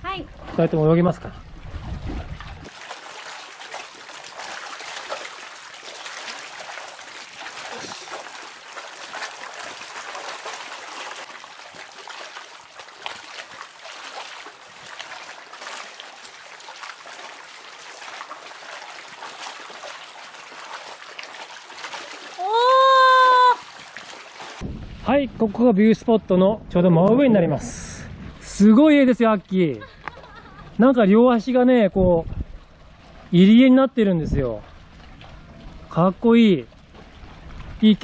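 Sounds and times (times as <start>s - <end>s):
seawater lapping among rocks: 0.0s - 25.1s, 27.2s - 38.0s
small water splashes: 0.0s - 25.7s, 27.6s - 38.0s.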